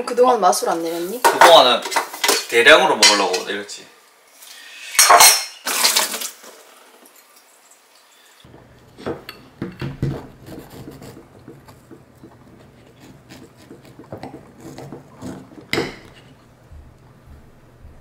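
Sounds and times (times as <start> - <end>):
knife crunching through cookie: 10.3 - 16.4.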